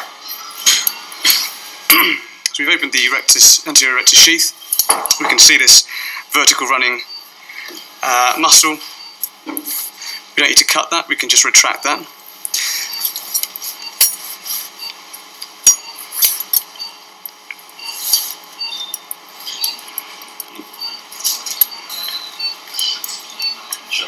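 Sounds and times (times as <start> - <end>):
metal instruments clinking: 12.4 - 14.4.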